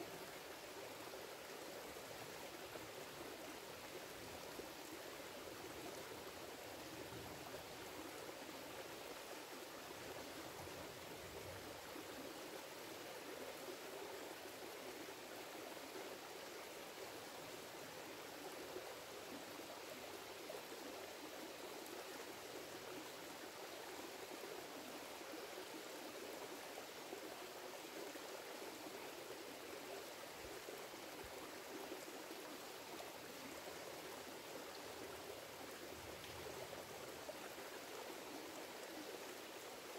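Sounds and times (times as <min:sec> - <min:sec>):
creek flowing over rocks: 0:00.0 - 0:39.9.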